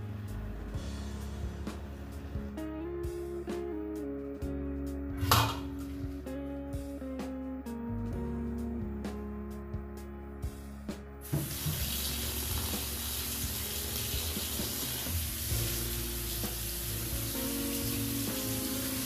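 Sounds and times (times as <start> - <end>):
background music: 0.0 - 19.0
tap water running into a colander: 11.2 - 19.0.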